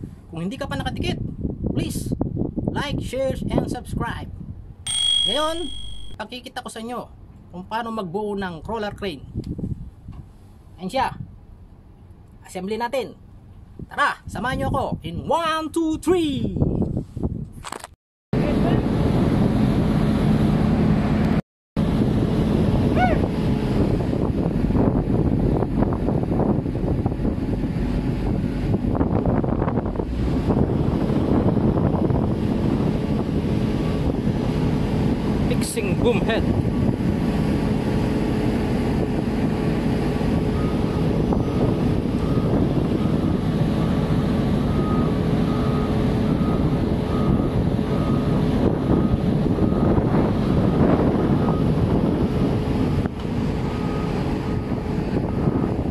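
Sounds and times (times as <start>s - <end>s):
wind buffeting microphone: 0.0s - 4.8s, 8.9s - 10.4s, 16.4s - 17.6s, 21.8s - 55.9s
high rising and falling call: 4.9s - 6.2s
diesel engine droning: 37.4s - 55.9s.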